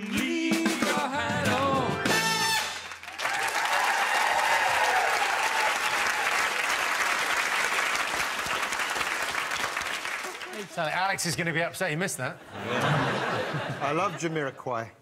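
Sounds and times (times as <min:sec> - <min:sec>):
audience clapping: 0:02.6 - 0:11.2
audience cheering and whooping: 0:03.0 - 0:09.2.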